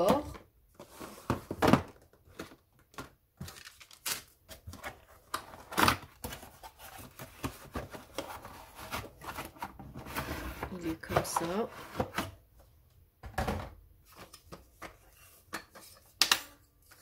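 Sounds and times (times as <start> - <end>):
plastic packs rustling: 0.1 - 12.4.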